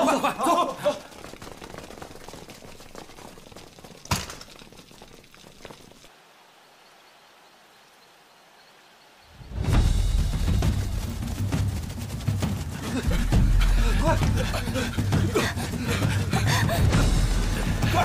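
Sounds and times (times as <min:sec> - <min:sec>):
footsteps and shuffling: 0:00.2 - 0:06.1, 0:09.4 - 0:18.0
music with drums: 0:09.5 - 0:18.0.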